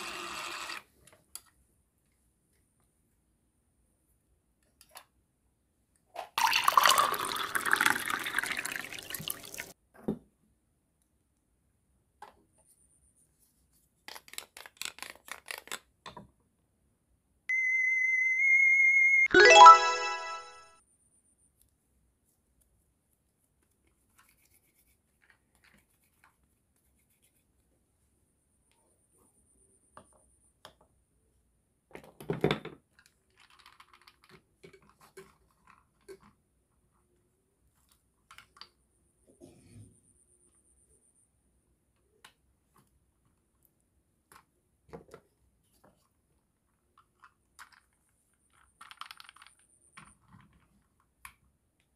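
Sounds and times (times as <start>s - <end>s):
liquid pouring into cup: 6.4s - 9.7s
steady high beep: 17.5s - 20.6s
plastic toy pieces clattering: 32.9s - 36.2s, 47.0s - 50.6s.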